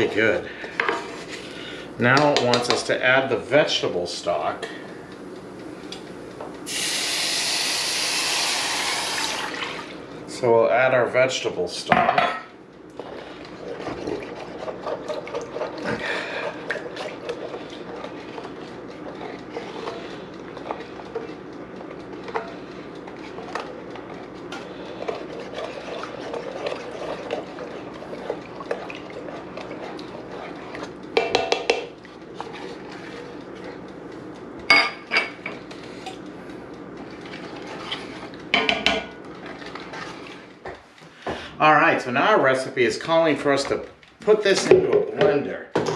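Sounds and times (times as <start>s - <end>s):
liquid sloshing: 13.0s - 33.8s.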